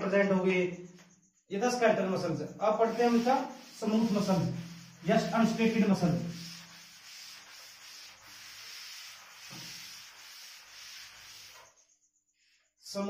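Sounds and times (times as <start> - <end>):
cloth wiping chalkboard: 2.6 - 11.8.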